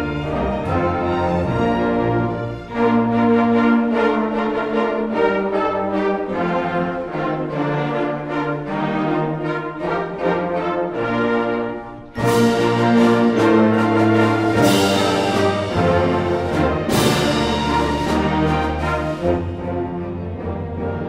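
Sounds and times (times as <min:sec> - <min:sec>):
orchestra playing sustained chords: 0:00.0 - 0:21.0.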